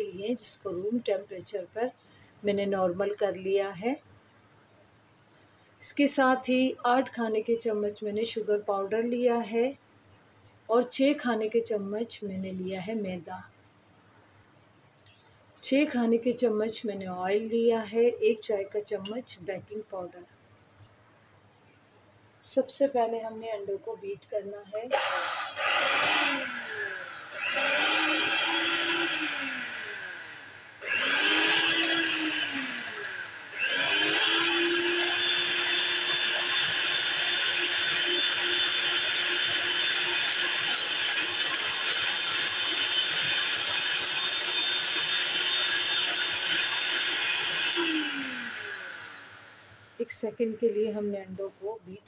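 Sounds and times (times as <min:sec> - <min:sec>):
electric hand mixer beating eggs: 0:24.9 - 0:49.7.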